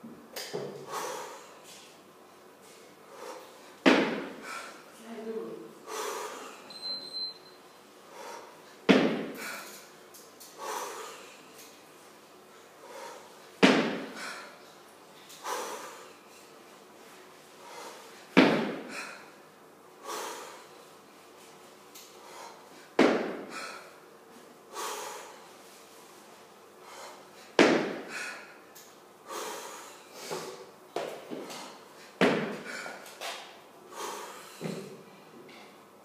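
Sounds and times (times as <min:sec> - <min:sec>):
heavy breathing: 0:00.8 - 0:01.9, 0:02.6 - 0:05.0, 0:05.8 - 0:06.7, 0:08.0 - 0:11.8, 0:12.6 - 0:16.6, 0:17.4 - 0:19.4, 0:20.0 - 0:20.9, 0:22.0 - 0:24.1, 0:24.7 - 0:26.1, 0:26.7 - 0:30.8, 0:31.4 - 0:33.2, 0:33.9 - 0:35.3
kettlebell thud: 0:03.8 - 0:04.4, 0:08.9 - 0:09.5, 0:13.6 - 0:14.2, 0:18.4 - 0:19.0, 0:23.0 - 0:23.6, 0:27.6 - 0:28.2, 0:32.2 - 0:32.8.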